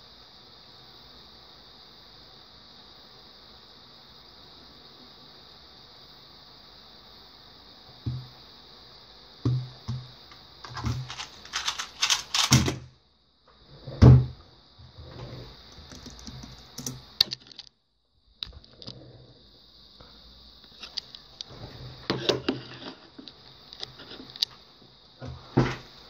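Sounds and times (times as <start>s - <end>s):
faint high whine: 0.0s - 26.0s
plastic cube clicking turns: 10.7s - 12.7s.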